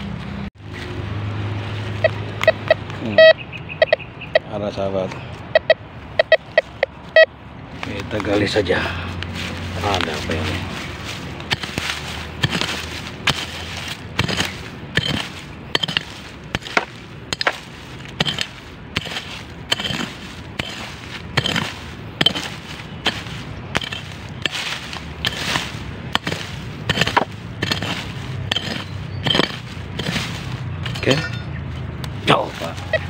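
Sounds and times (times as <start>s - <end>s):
earth scraping and crumbling: 7.7s - 33.0s
hoe chopping into soil: 11.4s - 31.2s.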